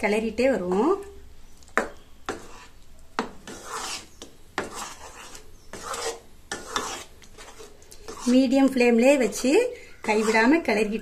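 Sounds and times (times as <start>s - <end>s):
spatula scraping a pan: 1.8s - 10.8s.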